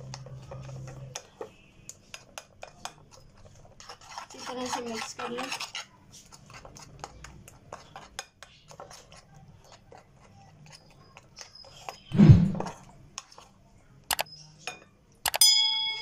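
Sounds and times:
spoon stirring batter on plate: 0:00.0 - 0:15.4
loud thump: 0:12.1 - 0:12.6.

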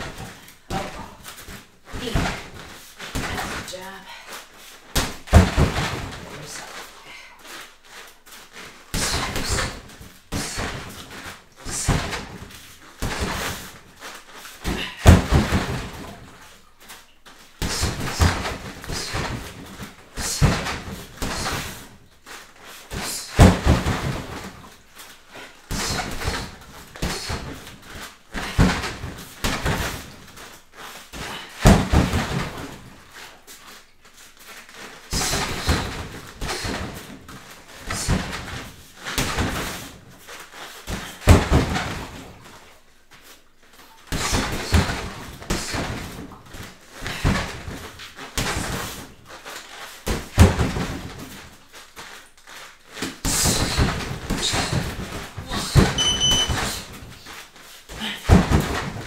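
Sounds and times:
gloved punches on punching bag: 0:31.2 - 0:32.8.

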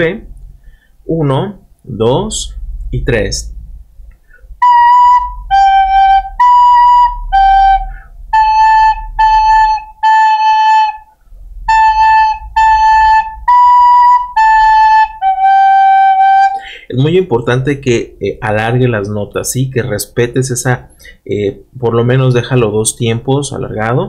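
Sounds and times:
recorder playing a slow melody: 0:04.3 - 0:16.7.

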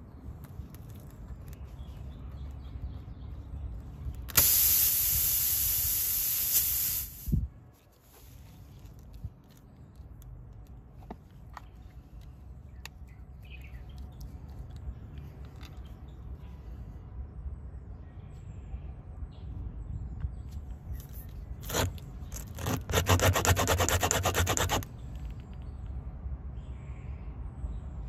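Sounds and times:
air hissing out of a tyre: 0:04.3 - 0:07.5.

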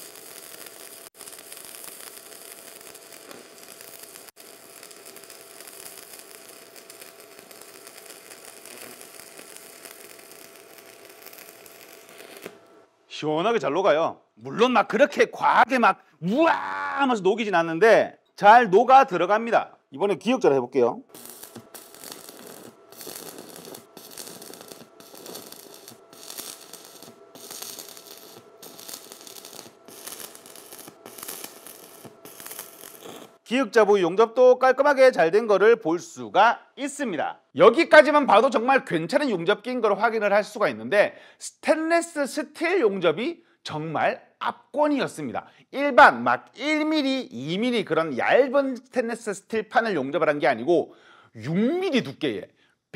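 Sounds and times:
welding arc crackling and sizzling: 0:00.0 - 0:12.9, 0:21.1 - 0:33.5
faint steady whine: 0:21.1 - 0:33.4.

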